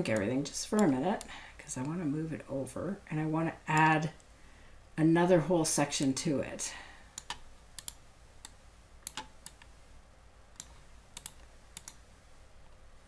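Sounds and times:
computer mouse clicking: 0:07.2 - 0:09.7, 0:10.5 - 0:12.0.

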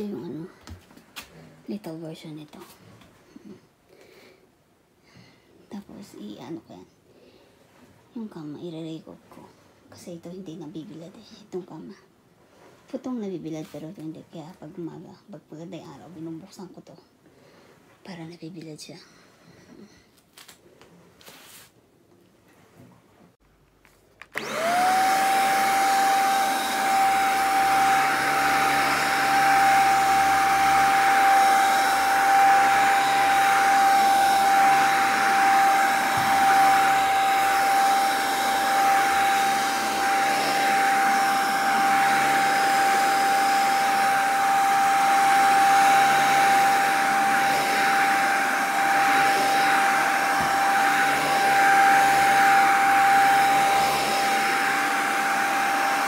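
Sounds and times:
vacuum cleaner motor whine: 0:24.2 - 0:56.0.

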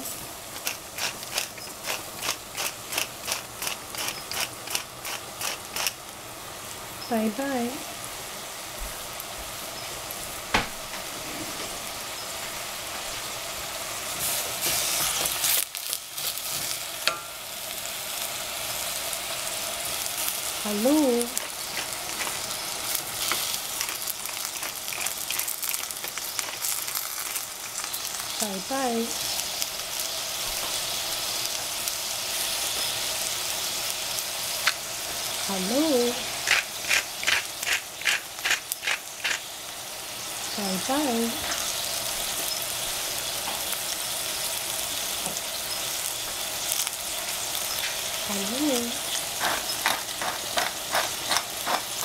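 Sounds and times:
pepper mill grinding: 0:00.0 - 0:06.0, 0:19.8 - 0:28.4, 0:32.3 - 0:39.6, 0:44.7 - 0:52.0
crackles: 0:00.0 - 0:06.2, 0:14.1 - 0:17.2, 0:19.0 - 0:52.0
vegetables sizzling in saucepan: 0:00.0 - 0:52.0.

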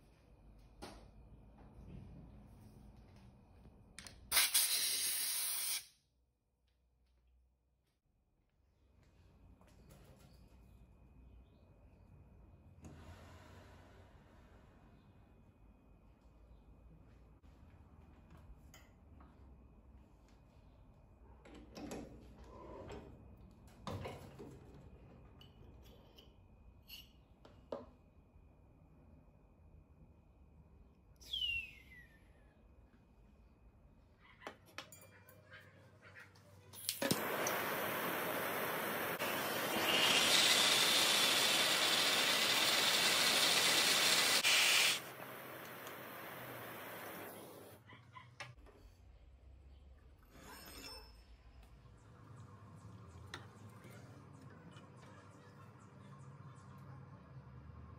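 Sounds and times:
gas torch flame hissing: 0:04.3 - 0:05.9, 0:36.9 - 0:47.8
electric arc hissing: 0:37.0 - 0:47.7.

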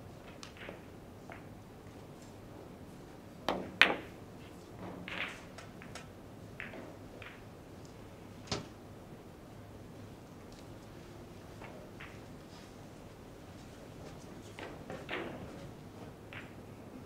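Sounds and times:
billiard balls clacking: 0:00.2 - 0:01.5, 0:03.4 - 0:08.1, 0:11.5 - 0:12.6, 0:14.5 - 0:16.6
cue striking ball: 0:03.5 - 0:04.2, 0:05.0 - 0:07.5, 0:16.3 - 0:16.6.

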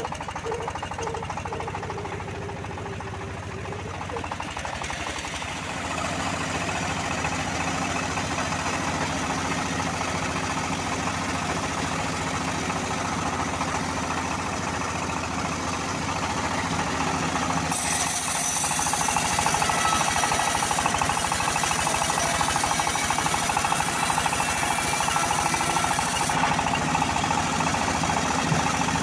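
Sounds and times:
band saw mill running: 0:00.0 - 0:29.0
saw blade cutting log: 0:17.7 - 0:26.8.

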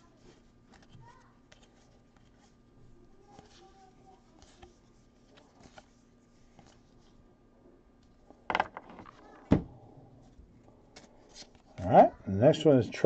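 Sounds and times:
hands handling trading cards: 0:00.2 - 0:02.6, 0:03.3 - 0:07.2, 0:10.9 - 0:11.9.

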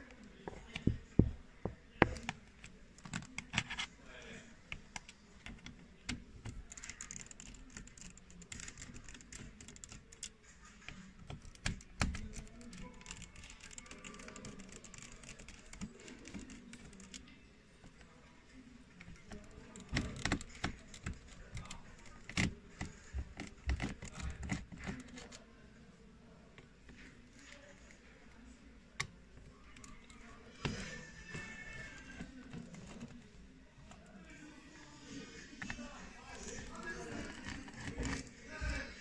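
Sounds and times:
tools clicking and tapping: 0:00.4 - 0:03.9.

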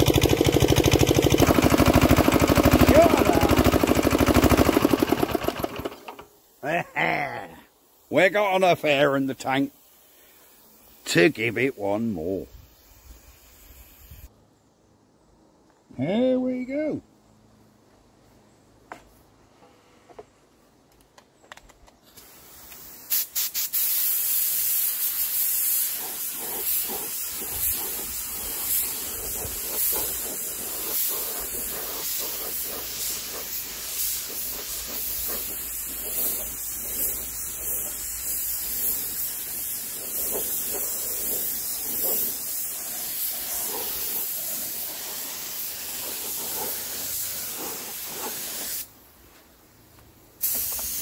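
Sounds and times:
spray gun hissing: 0:00.0 - 0:06.7, 0:08.0 - 0:14.3, 0:22.1 - 0:49.0, 0:50.4 - 0:51.0.

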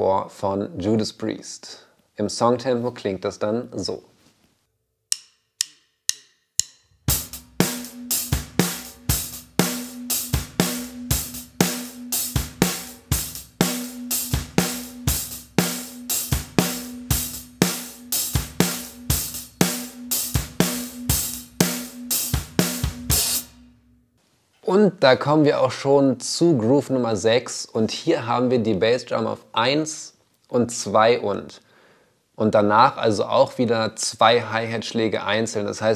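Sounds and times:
sharp count-in clicks: 0:05.1 - 0:06.8
drum kit rock groove: 0:06.6 - 0:24.0.

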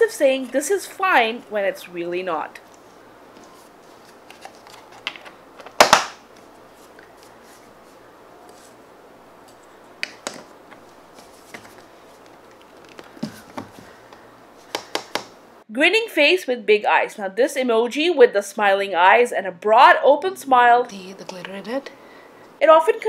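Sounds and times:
plastic tubs clicking and tapping: 0:12.8 - 0:15.4.

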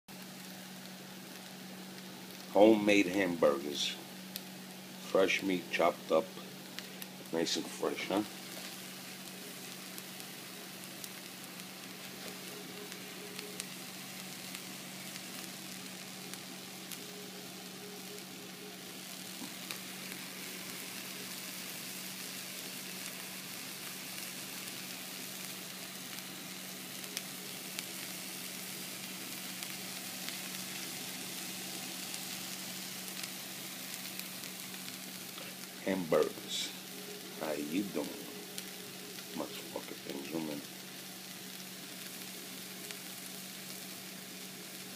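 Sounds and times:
patties sizzling in a frying pan: 0:00.1 - 0:44.9.

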